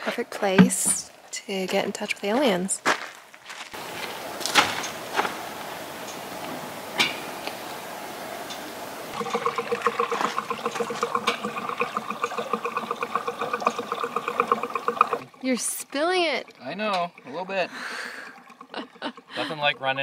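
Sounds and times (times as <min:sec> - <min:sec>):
fuel pouring and glugging: 0:09.1 - 0:20.0.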